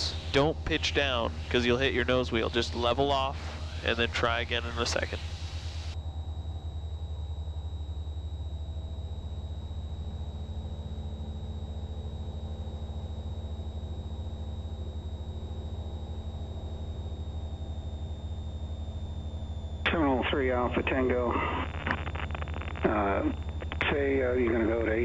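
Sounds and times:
aircraft piston engine drone: 0:00.0 - 0:06.0
thin high whine: 0:00.0 - 0:06.5, 0:15.3 - 0:25.0.

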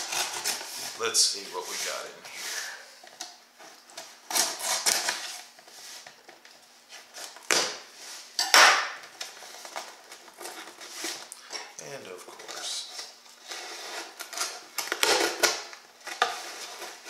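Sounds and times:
knife slicing packing tape: 0:00.0 - 0:00.9, 0:04.3 - 0:05.5, 0:13.5 - 0:17.0.

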